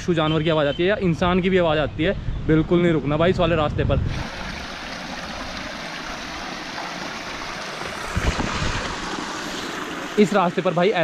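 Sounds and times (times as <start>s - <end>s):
spring water splashing: 4.1s - 11.0s.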